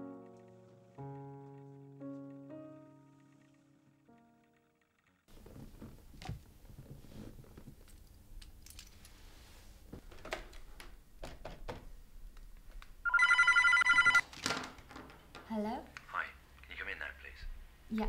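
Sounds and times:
telephone ringing electronic trill: 0:13.1 - 0:14.2.

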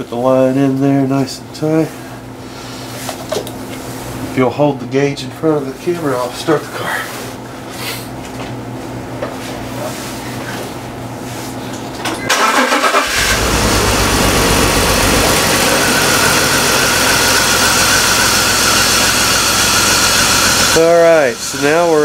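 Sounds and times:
car engine cranking and starting: 0:12.3 - 0:21.7
car engine idling: 0:12.3 - 0:22.0.

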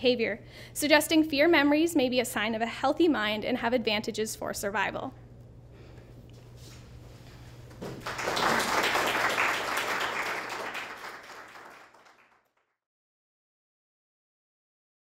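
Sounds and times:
audience applauding: 0:07.8 - 0:12.6.

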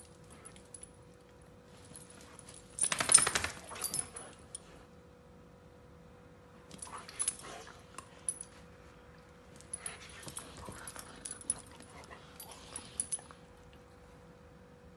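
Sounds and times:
collar tags jingling: 0:01.8 - 0:04.6, 0:09.5 - 0:13.4.

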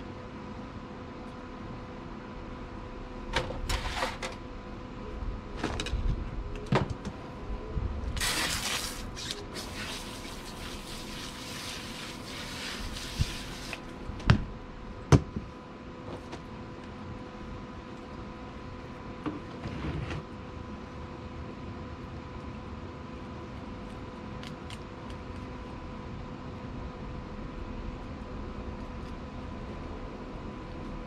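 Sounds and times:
water from hose splashing: 0:08.2 - 0:13.8.

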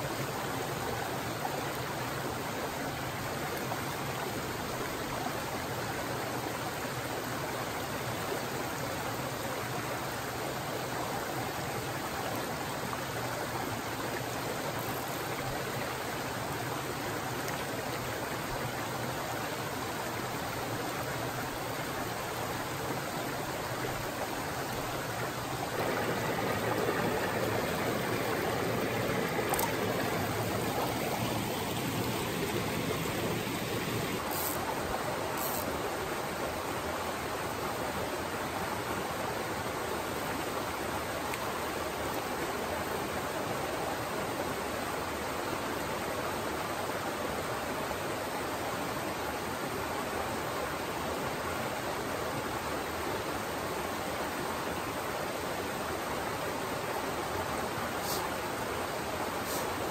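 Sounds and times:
small waterfall pouring into pool: 0:00.0 - 0:36.1
stream running over rocks: 0:00.0 - 0:59.9.

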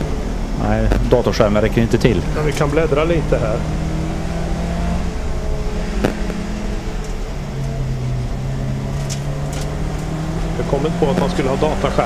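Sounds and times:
race car engine under load: 0:00.0 - 0:12.0.

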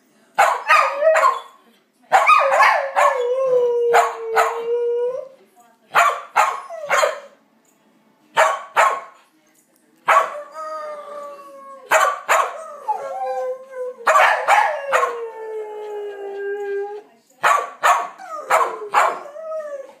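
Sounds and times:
dog barking: 0:00.4 - 0:01.5, 0:02.1 - 0:03.2, 0:05.9 - 0:07.3, 0:08.4 - 0:09.2, 0:10.1 - 0:10.4, 0:11.9 - 0:12.6, 0:14.1 - 0:15.1, 0:17.4 - 0:19.2
dog howling: 0:12.5 - 0:17.0.

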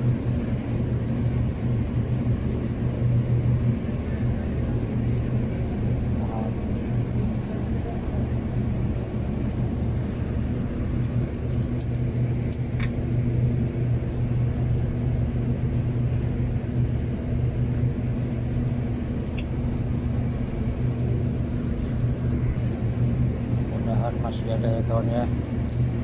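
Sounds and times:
boat engine humming: 0:00.0 - 0:26.0.

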